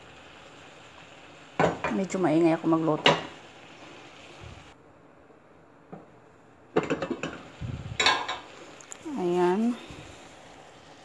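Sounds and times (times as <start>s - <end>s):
metal utensil clattering in pot: 8.0s - 8.4s.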